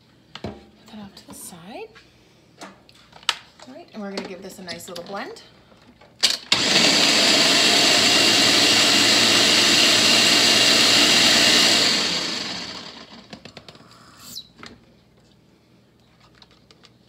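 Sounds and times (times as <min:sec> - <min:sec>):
blender running: 0:06.5 - 0:13.3.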